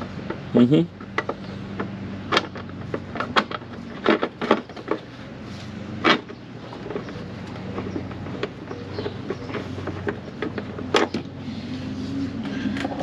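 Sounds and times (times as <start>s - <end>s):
sharp knocks and clunks of parts: 0.0s - 13.0s
steady low hum: 0.0s - 13.0s.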